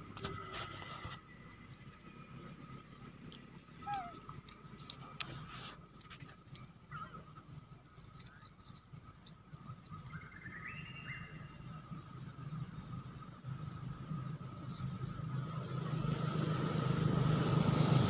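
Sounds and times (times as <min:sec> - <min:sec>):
small clicks and rustles: 0:03.2 - 0:06.9, 0:07.7 - 0:10.3.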